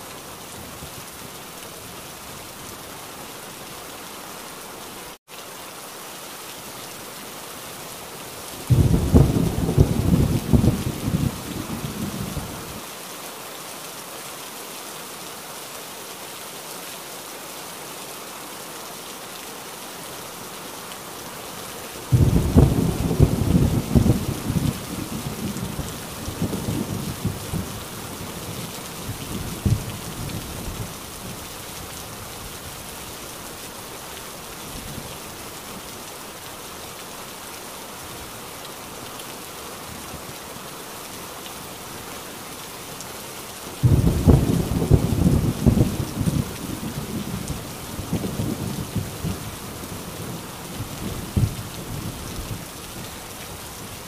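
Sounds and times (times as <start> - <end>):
heavy rain falling: 0.0 - 54.0
thunderclap rumbling: 8.7 - 12.3, 22.1 - 27.7, 43.8 - 49.4.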